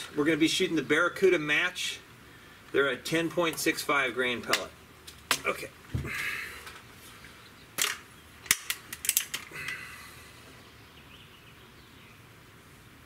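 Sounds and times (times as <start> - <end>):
sharp metallic clicks: 7.8 - 9.8.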